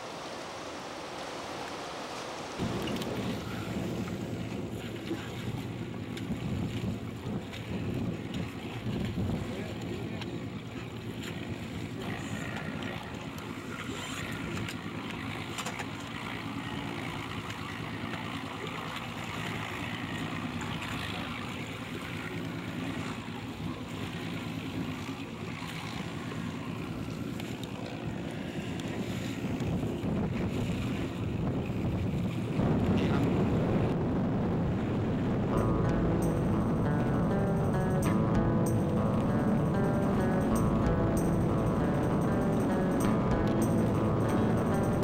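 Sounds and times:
water sloshing around boat: 0.0s - 33.8s
wind buffeting microphone: 2.6s - 13.0s, 28.0s - 37.4s.

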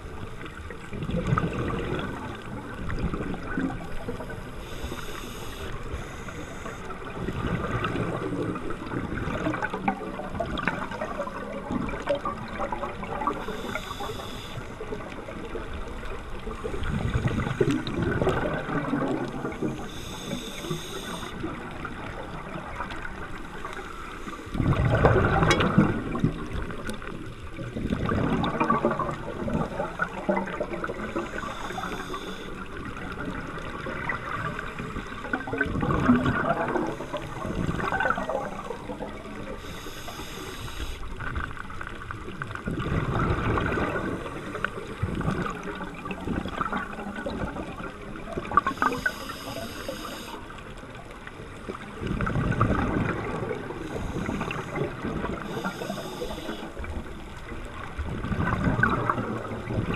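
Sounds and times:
exhaust bubbles gurgling: 0.0s - 59.9s
regulator inhale hiss: 4.4s - 7.1s, 13.4s - 14.8s, 19.7s - 21.5s, 23.8s - 24.6s, 30.9s - 32.6s, 36.8s - 38.8s, 39.5s - 41.2s, 48.6s - 50.5s, 53.8s - 56.9s.

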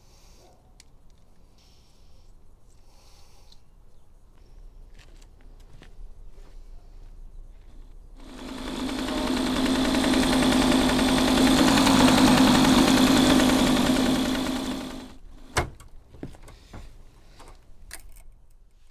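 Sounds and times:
small engine running: 8.2s - 15.6s.

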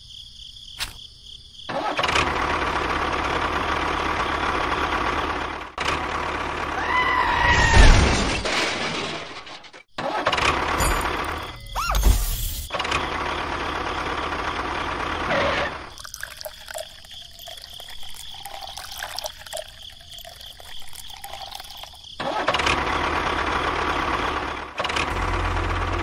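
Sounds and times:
engine-like motor: 1.7s - 6.8s, 12.3s - 15.9s, 22.2s - 26.0s
water splashing: 15.9s - 22.1s.

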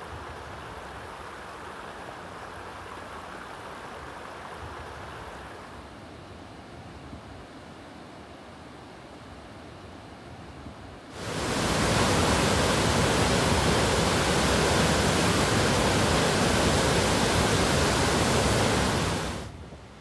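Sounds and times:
waterfall rushing: 11.1s - 19.5s.

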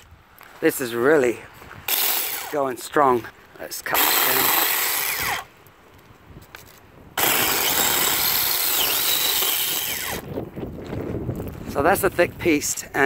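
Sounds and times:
electric chainsaw cutting branch: 1.9s - 2.6s, 3.8s - 5.5s, 7.2s - 10.3s.

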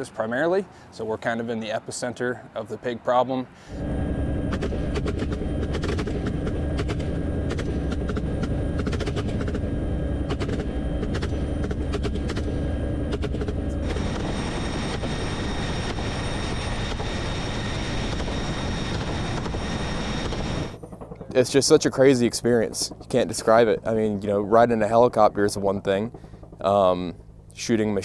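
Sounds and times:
helicopter engine and rotor: 3.6s - 28.0s
high whine: 3.7s - 28.0s
rapid gunfire: 4.5s - 15.1s.

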